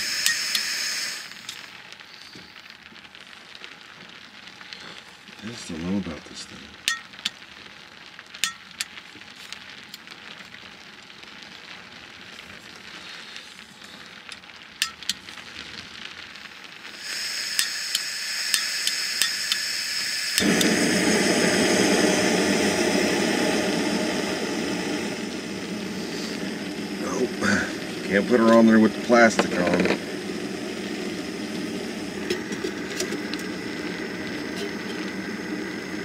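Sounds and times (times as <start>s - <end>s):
gas hissing: 0.0s - 2.8s, 12.4s - 36.0s
burner rushing flame: 0.0s - 36.0s
stove igniter clicks: 0.2s - 0.7s, 17.5s - 19.7s.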